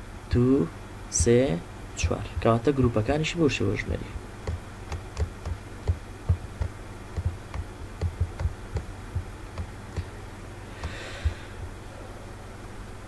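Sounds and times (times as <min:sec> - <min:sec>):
electrical hum: 0:00.0 - 0:13.0
soft low knocks: 0:04.4 - 0:10.1.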